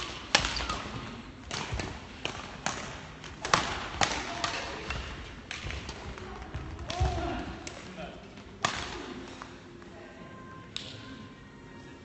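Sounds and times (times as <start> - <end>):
rackets hitting shuttlecock: 0.0 - 7.8, 8.6 - 9.5.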